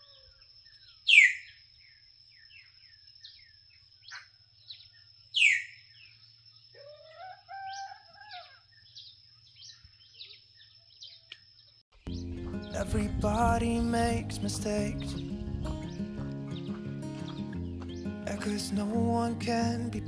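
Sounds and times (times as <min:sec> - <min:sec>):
drawn-out whistled bird call: 0:00.0 - 0:06.2
short bird chirps: 0:00.1 - 0:06.8
sharp downward bird calls: 0:01.0 - 0:01.6, 0:05.4 - 0:06.1.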